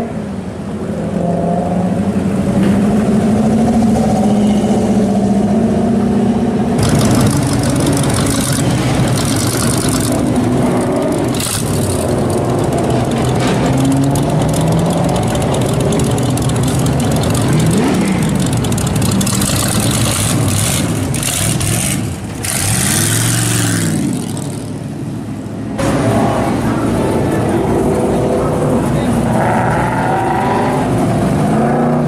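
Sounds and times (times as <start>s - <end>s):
pickup engine idling with throttle blips: 6.8s - 23.4s.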